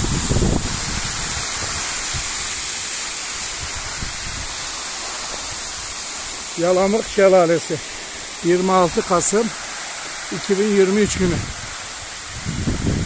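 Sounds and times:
waterfall splashing onto road: 0.0 - 13.0.

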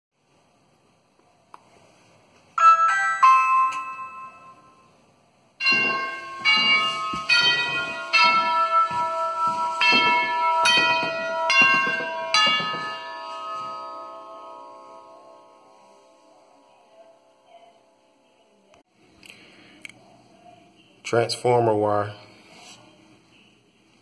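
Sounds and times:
tubular door chime ringing tune: 2.6 - 5.0, 5.6 - 18.2
two-note doorbell chime: 2.6 - 5.0, 5.6 - 16.5.

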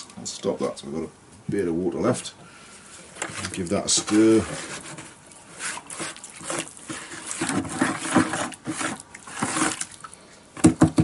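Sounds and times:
clay slip sloshing in bucket: 2.7 - 11.0
sharp knocks: 10.6 - 11.0.

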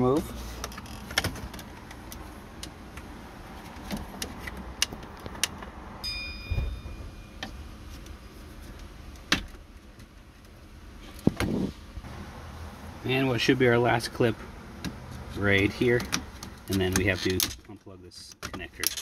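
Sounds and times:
brief high tone: 6.0 - 7.5.

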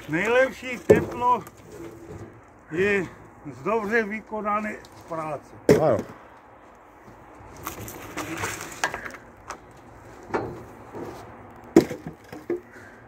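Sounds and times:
wood scraping against wood: 0.0 - 2.7, 6.1 - 13.0.

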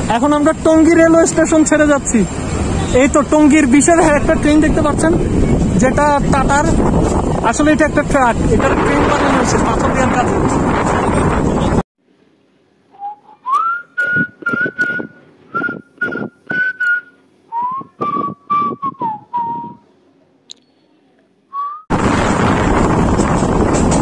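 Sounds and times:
whistled tune: 12.9 - 19.8, 21.5 - 21.9.

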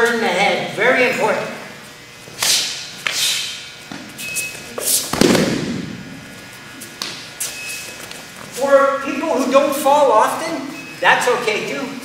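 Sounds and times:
sharp slaps of contact: 4.9 - 5.8, 7.0 - 7.2
body thudding on a mat: 5.1 - 6.2.

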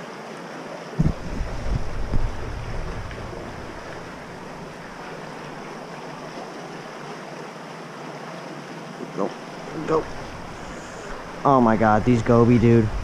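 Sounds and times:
wind rumble on microphone: 1.0 - 5.6, 10.0 - 13.0
water lapping on rocky shore: 1.0 - 13.0.

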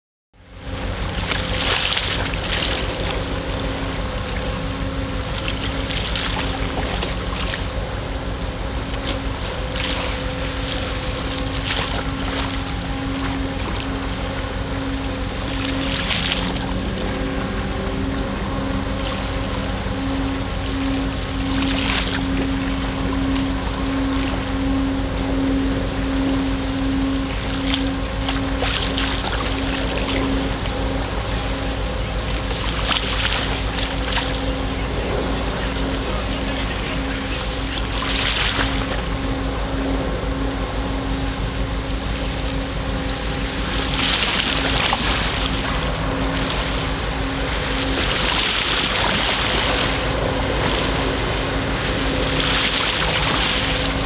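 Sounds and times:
ship engine drone: 0.4 - 54.0
water splashes: 1.0 - 40.5, 41.9 - 54.0.

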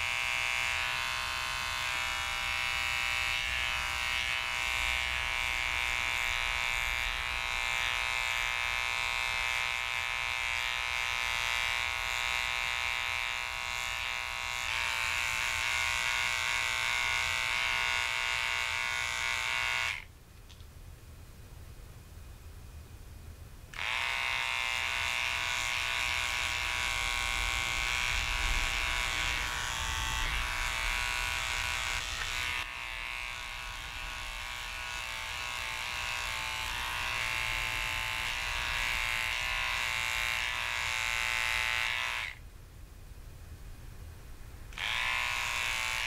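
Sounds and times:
electric pet clipper buzzing: 0.0 - 20.1, 23.7 - 42.4, 44.7 - 46.0.

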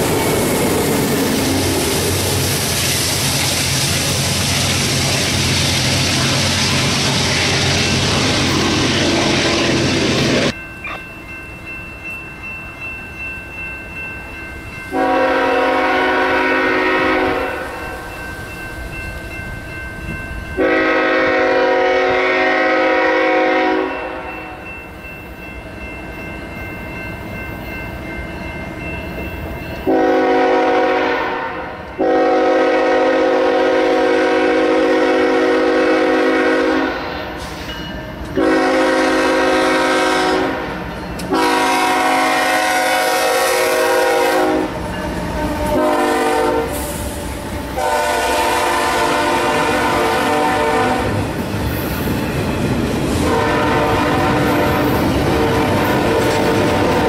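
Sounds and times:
train air horn blasts: 14.9 - 17.9, 20.6 - 24.3, 29.9 - 37.7, 38.3 - 51.2, 53.2 - 57.0.

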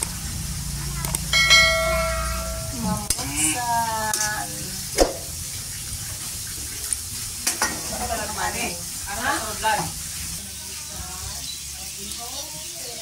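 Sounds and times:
food sizzling in a wok: 0.0 - 13.0
short wavering tone: 1.4 - 3.1.

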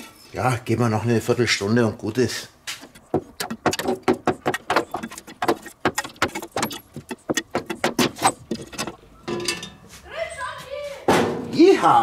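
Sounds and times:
metal tongs clinking on coals and lid: 8.2 - 9.9.

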